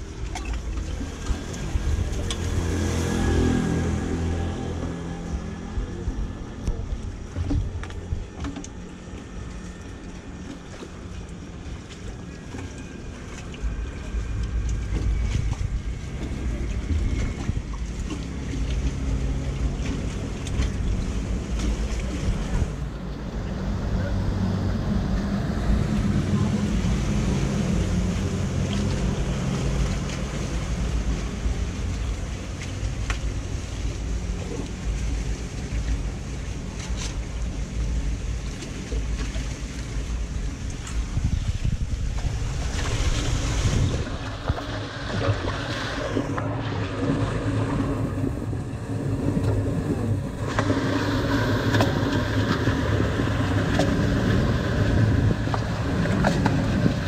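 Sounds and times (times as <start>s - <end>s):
water draining into street drain: 0.0s - 5.8s
wind noise on microphone: 40.0s - 57.0s.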